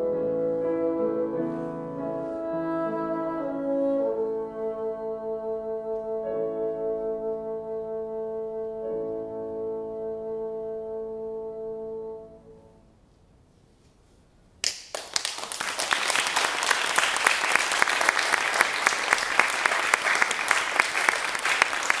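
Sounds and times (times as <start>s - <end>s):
audience applause: 14.6s - 22.0s.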